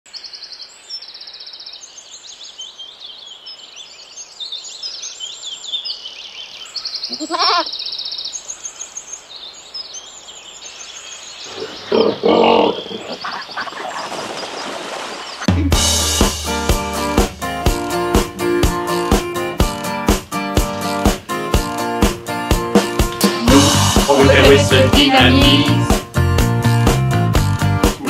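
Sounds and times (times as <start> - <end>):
small birds chirping: 0.1 - 15.5
goat bleating: 7.1 - 7.7.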